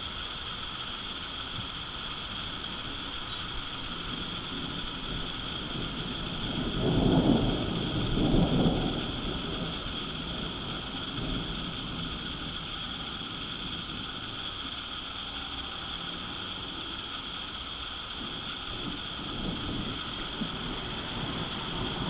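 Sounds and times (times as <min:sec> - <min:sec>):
steady background hiss: 0:00.0 - 0:22.0
thunder rumbling: 0:04.2 - 0:14.2, 0:18.2 - 0:22.0.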